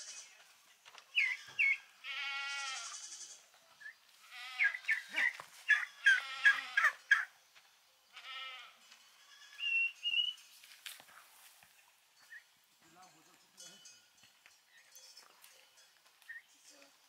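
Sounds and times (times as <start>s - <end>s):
goats bleating: 1.2s - 3.5s, 4.2s - 7.0s, 8.1s - 9.7s.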